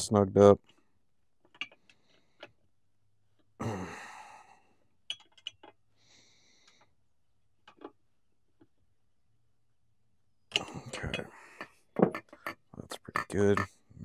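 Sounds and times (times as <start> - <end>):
person exhaling: 3.6 - 4.8.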